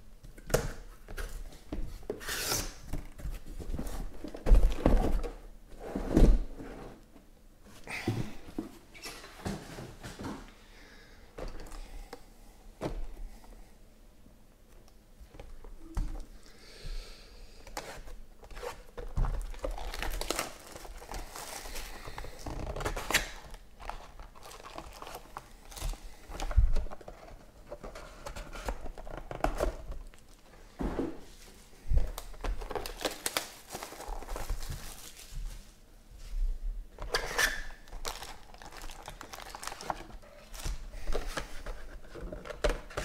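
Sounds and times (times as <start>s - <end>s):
cardboard and packs rustling: 0.8s - 7.2s, 17.7s - 36.4s, 37.0s - 43.0s
plastic wrapping crinkling and tearing: 17.9s - 27.2s, 32.0s - 35.6s, 37.2s - 41.8s.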